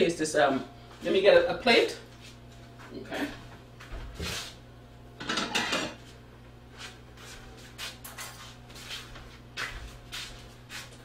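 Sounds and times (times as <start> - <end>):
dishes clattering: 5.2 - 6.0.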